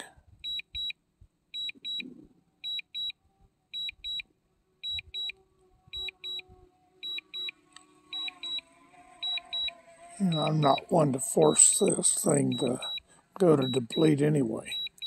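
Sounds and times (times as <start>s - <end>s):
remote controller high beeps: 1.6s - 3.2s, 3.8s - 4.2s, 4.8s - 5.4s, 6.0s - 10.9s, 12.3s - 15.0s.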